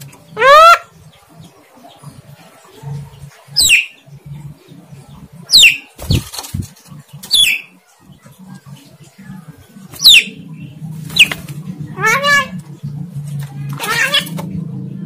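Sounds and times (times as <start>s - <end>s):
bird whistled calls: 3.6s - 4.0s, 5.5s - 5.9s, 7.3s - 7.7s, 10.0s - 10.4s.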